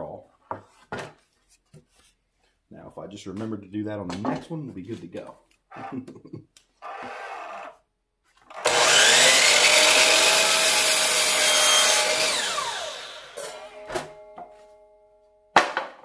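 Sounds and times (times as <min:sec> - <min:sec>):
miter saw cutting wood: 0:08.5 - 0:13.9.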